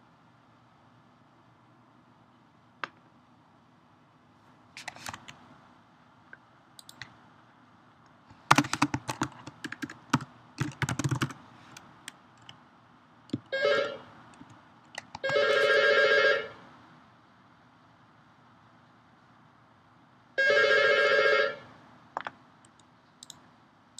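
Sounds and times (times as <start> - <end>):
keyboard typing: 6.8 - 7.2, 8.4 - 12.6, 14.4 - 15.7
telephone ringtone: 13.6 - 14.0, 15.3 - 16.5.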